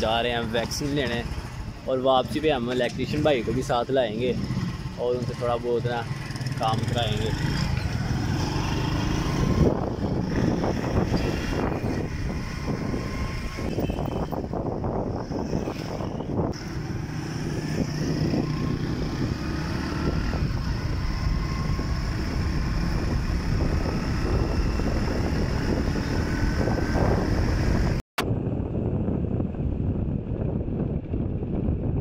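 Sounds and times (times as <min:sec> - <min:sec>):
wind buffeting microphone: 0:00.2 - 0:32.0
motorcycle engine running: 0:00.3 - 0:32.0.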